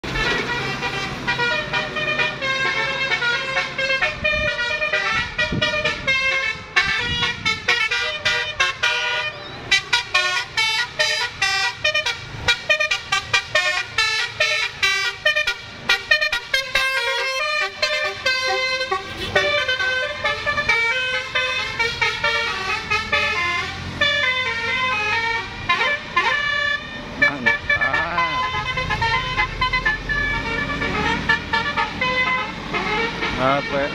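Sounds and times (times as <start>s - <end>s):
musical bus horn melody: 0.0s - 33.9s.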